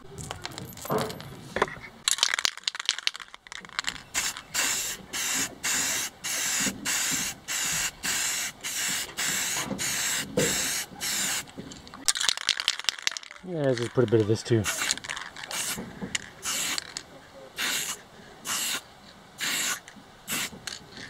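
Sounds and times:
spray paint can hissing: 2.1 - 13.3, 14.6 - 15.8, 16.4 - 17.0, 17.6 - 18.8, 19.4 - 20.8.

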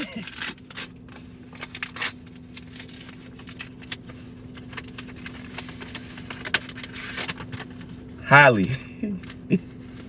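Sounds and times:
paper rustling and crinkling: 0.0 - 7.9
steady low hum: 0.0 - 10.0.

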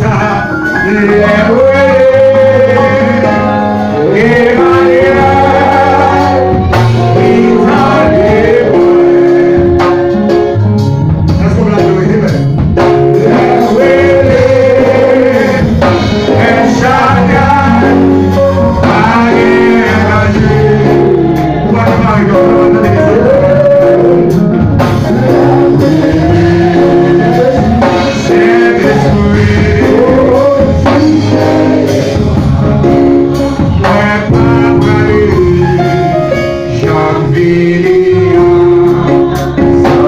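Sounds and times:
man singing through microphone: 0.0 - 10.6, 11.3 - 40.0
bass guitar notes: 0.0 - 40.0
drum strikes: 5.0 - 23.3, 24.2 - 36.4.

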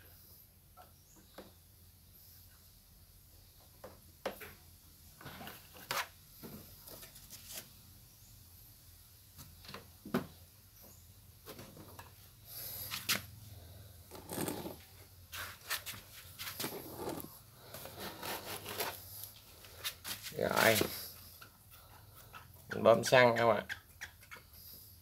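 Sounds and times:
hose rubbing on plastic: 14.1 - 21.2.

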